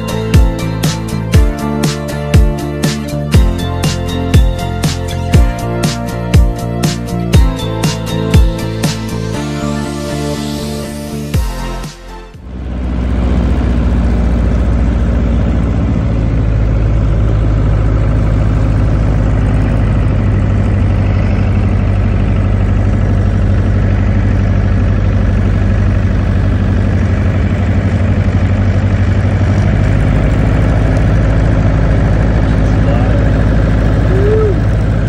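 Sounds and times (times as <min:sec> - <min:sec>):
light aircraft engine droning: 0:12.4 - 0:35.0.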